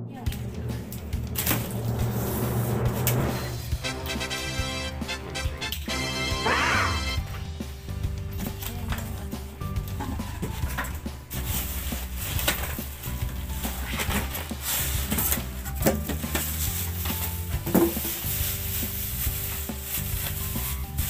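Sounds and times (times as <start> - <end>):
music: 0.0 - 21.0
plastic bag crinkling: 8.4 - 21.0.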